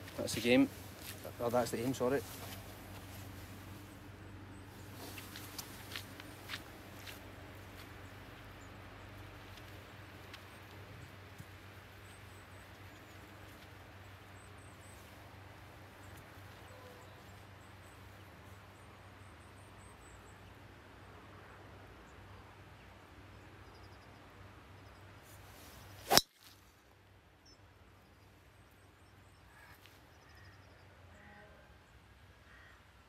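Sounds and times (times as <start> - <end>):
faint birdsong: 0.0 - 33.0
golf club striking ball: 26.1 - 26.3.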